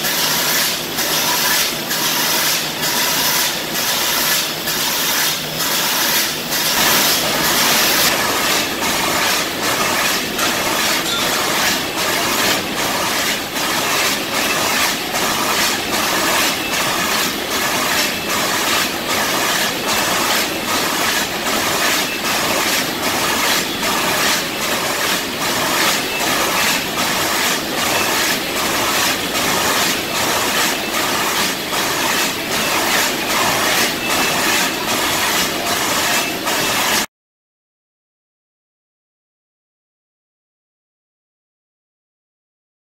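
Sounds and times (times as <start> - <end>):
sharp machine stroke: 0.0 - 37.1
machine mechanical clatter: 0.1 - 37.1.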